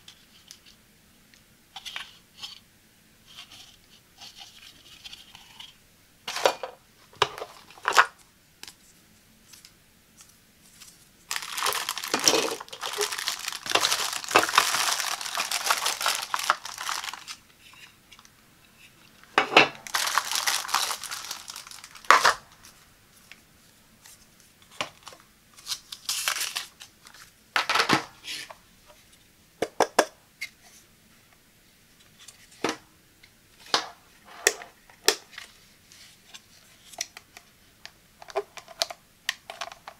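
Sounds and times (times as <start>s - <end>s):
plastic bag crinkling: 10.8s - 17.4s, 19.8s - 22.8s, 24.9s - 27.2s.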